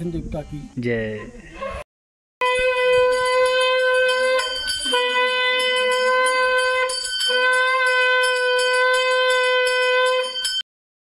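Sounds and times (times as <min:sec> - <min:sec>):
conch shell blasts: 0:02.4 - 0:10.6.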